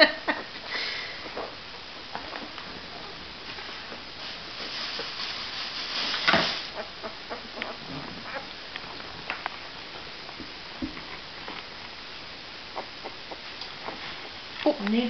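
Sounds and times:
fabric rustling: 2.7s - 6.8s
sharp rustle or bump: 4.5s - 6.7s
puppies squeaking: 12.7s - 14.4s.

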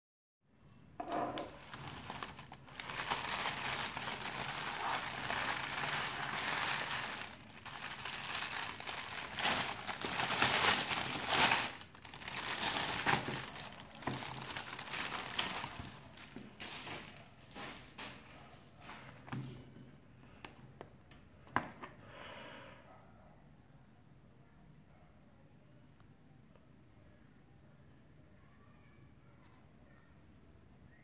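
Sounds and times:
plastic bag crinkling: 1.0s - 18.3s.

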